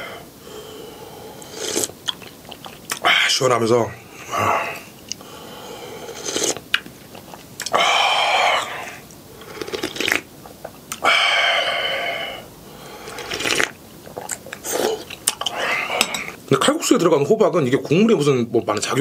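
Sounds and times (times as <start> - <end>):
person slurping broth: 0.6 - 2.8, 4.3 - 6.6, 7.2 - 16.4
mouth clicks and smacks: 1.4 - 3.1, 6.2 - 7.8, 9.1 - 11.1, 13.1 - 15.6.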